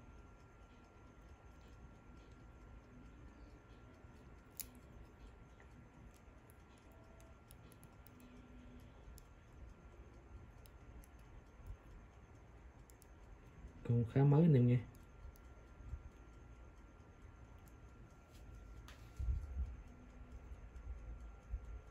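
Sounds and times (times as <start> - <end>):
wristwatch clicks: 4.4 - 5.1, 6.1 - 8.4, 12.8 - 13.2.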